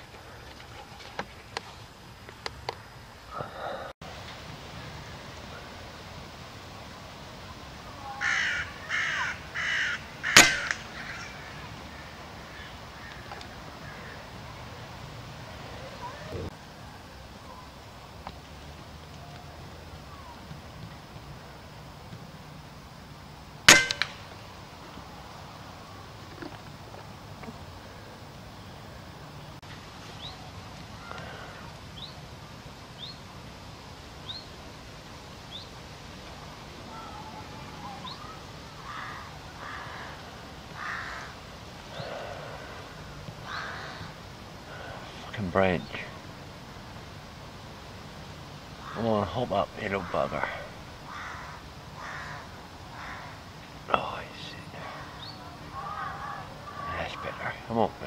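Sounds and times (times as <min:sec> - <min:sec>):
low outdoor rumble: 0:00.0 - 0:58.0
crow cawing: 0:08.0 - 0:14.3, 0:38.0 - 0:45.0, 0:48.8 - 0:53.4, 0:54.8 - 0:57.5
air rifle shot: 0:10.3 - 0:11.2, 0:23.7 - 0:24.3.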